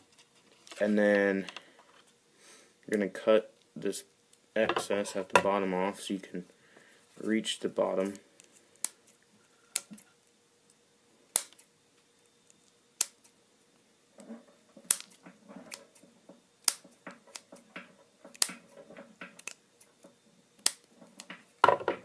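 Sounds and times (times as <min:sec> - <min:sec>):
rustling of tape and hands: 0:00.0 - 0:02.2, 0:14.2 - 0:22.0
scissors snipping tape: 0:14.9 - 0:15.9, 0:18.3 - 0:18.6, 0:19.4 - 0:19.6, 0:20.6 - 0:20.9.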